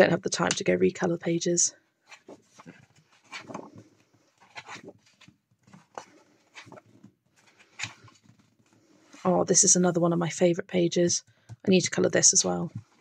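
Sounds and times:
paper pages rustling: 2.0 - 9.3.

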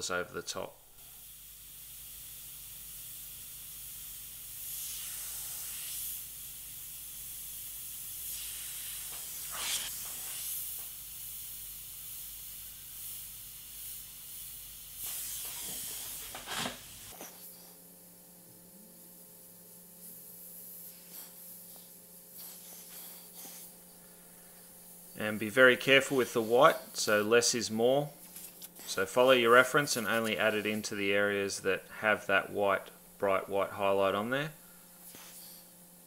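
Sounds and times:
airbrush hissing compressed air: 0.9 - 36.0.

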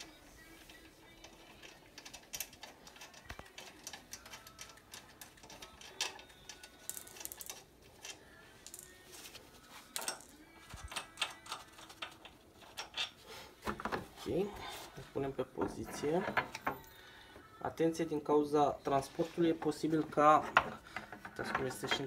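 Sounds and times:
metallic clicks of bolts: 1.2 - 8.9, 9.9 - 13.1.

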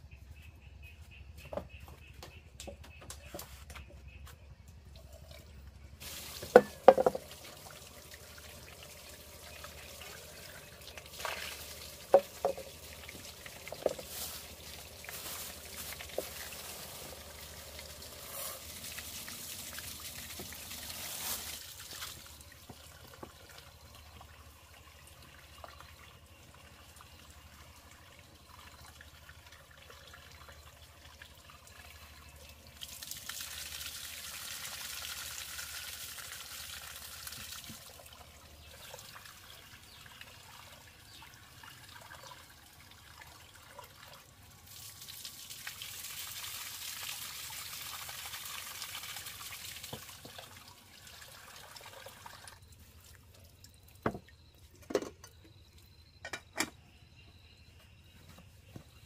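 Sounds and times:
tap water splashing on metal pot: 6.0 - 7.8, 10.9 - 18.1, 49.6 - 50.6, 54.0 - 55.3.

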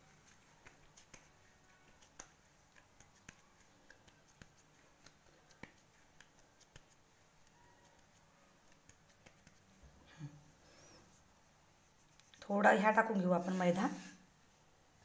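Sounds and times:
fingers patting dough: 0.0 - 9.8.

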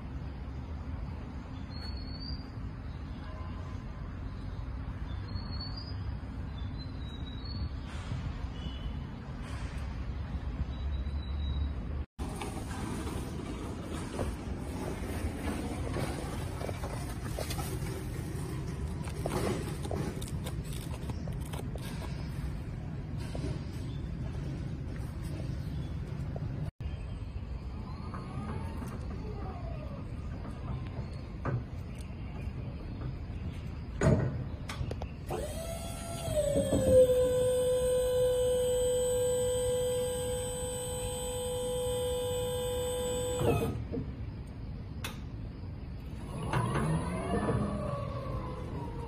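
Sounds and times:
electric motor whining: 35.3 - 43.8
click: 44.4 - 45.2.

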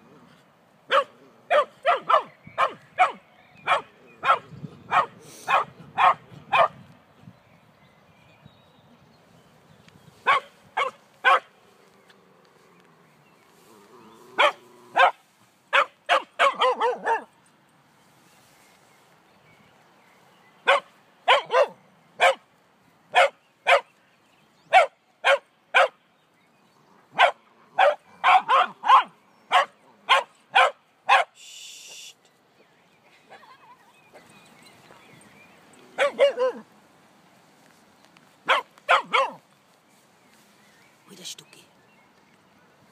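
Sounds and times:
dogs barking in sharp yaps: 0.9 - 6.8, 10.2 - 11.6, 14.3 - 17.3, 20.6 - 22.5, 23.1 - 24.0, 24.7 - 26.0, 27.1 - 32.1, 35.8 - 36.7, 38.4 - 39.5
brief hiss: 31.4 - 32.3.

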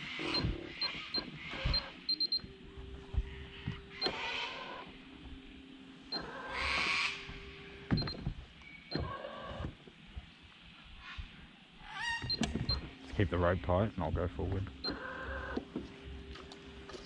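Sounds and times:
electric motor whining: 0.0 - 9.9, 12.1 - 17.0.

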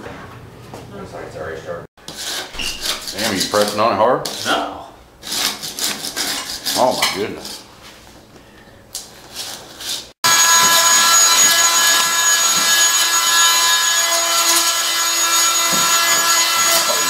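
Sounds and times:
power tool buzzing whine: 10.2 - 17.0.

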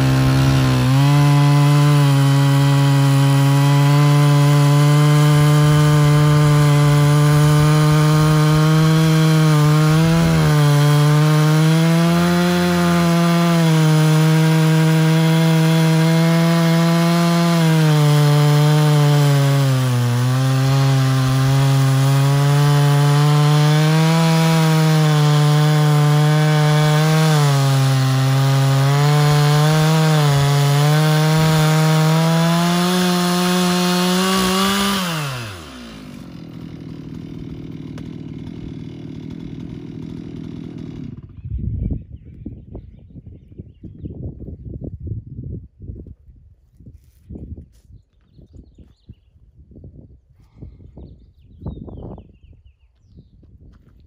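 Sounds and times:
chainsaw cutting log: 0.0 - 41.5.

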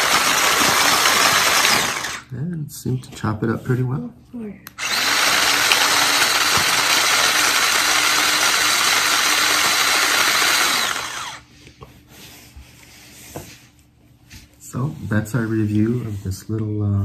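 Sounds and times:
electric chopper whirring: 0.0 - 2.2, 4.8 - 11.4.

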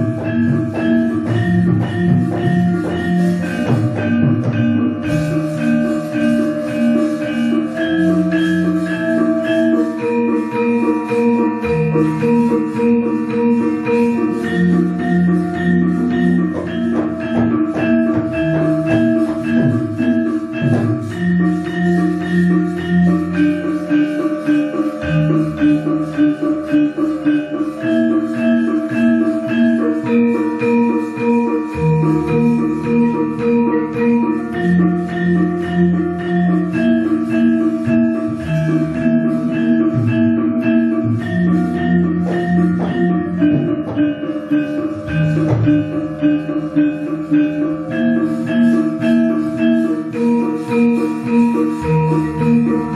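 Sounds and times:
gamelan orchestra playing: 0.0 - 52.9.

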